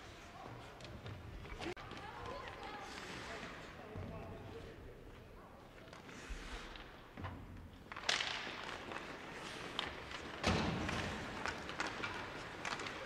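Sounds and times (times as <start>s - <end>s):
hockey sticks and puck clicking: 0.8s - 3.2s, 7.7s - 13.0s
hard bangs echoing in rink: 10.2s - 13.0s.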